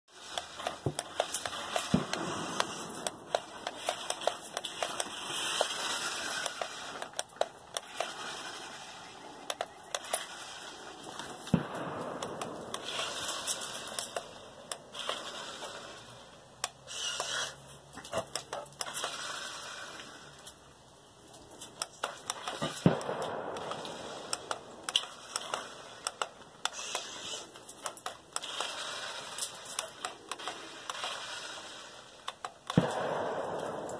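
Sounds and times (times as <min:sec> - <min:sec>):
toy car electric motor whirring: 0:00.1 - 0:11.3, 0:12.8 - 0:17.6, 0:18.2 - 0:20.6, 0:23.6 - 0:32.8
toy car wheels clicking and clattering: 0:00.1 - 0:20.7, 0:21.3 - 0:33.9.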